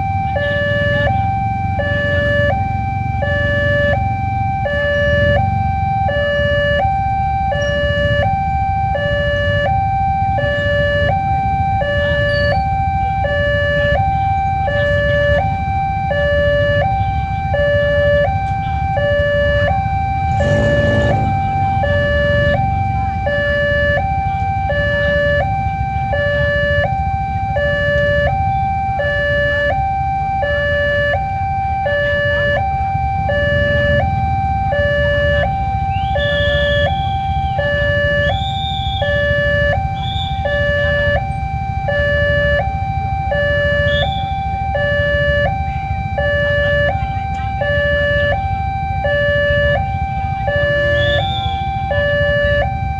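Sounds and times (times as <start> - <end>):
road traffic rumble: 0.0 - 52.9
two-tone crossing alarm: 0.0 - 52.9
vehicle engine revving: 19.0 - 24.1.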